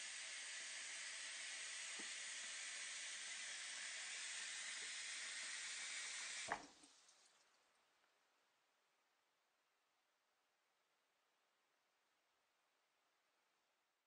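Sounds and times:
tap water running: 0.0s - 7.6s.

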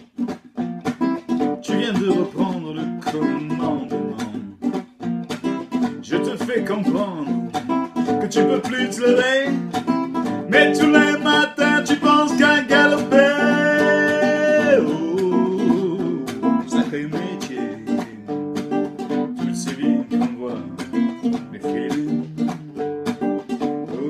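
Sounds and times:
acoustic guitar strumming: 0.0s - 24.0s
man singing: 1.5s - 4.7s, 5.8s - 24.0s.

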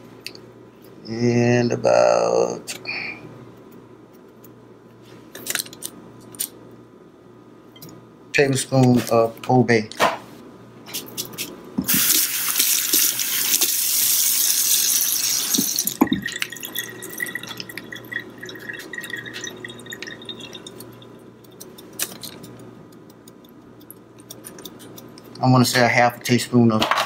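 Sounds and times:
water running from tap: 11.9s - 21.1s.

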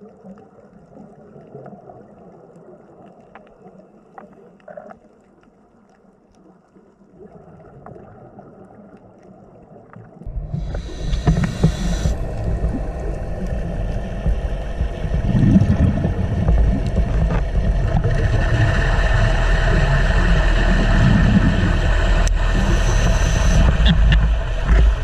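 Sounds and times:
underwater low rumble: 0.0s - 25.0s
faint hiss: 10.3s - 17.4s.

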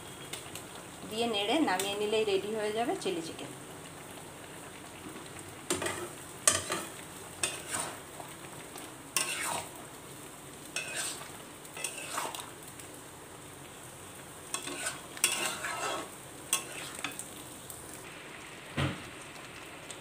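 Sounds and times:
low sizzle: 0.0s - 20.0s
metal spatula scraping pan: 5.8s - 8.0s, 9.2s - 9.7s, 10.8s - 12.4s, 14.5s - 17.2s.

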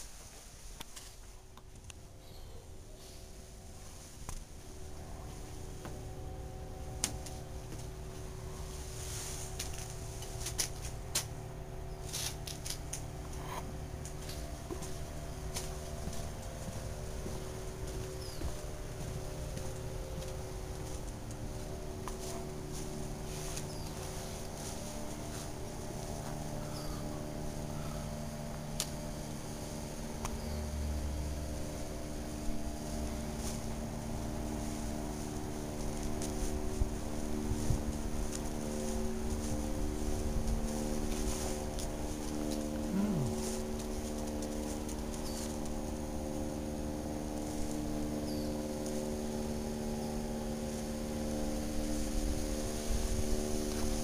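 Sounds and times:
faint constant whine: 0.0s - 54.0s
steady low hum: 0.0s - 54.0s
footsteps: 12.0s - 26.6s.

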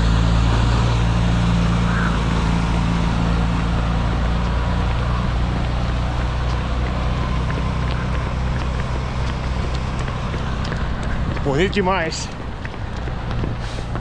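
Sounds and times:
truck engine running: 0.0s - 14.0s
faint running footsteps: 3.2s - 14.0s.

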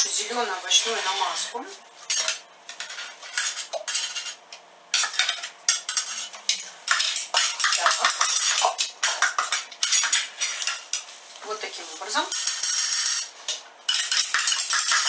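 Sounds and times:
metal spoon scraping metal bowl: 2.1s - 4.4s, 5.0s - 11.1s, 12.1s - 15.0s.

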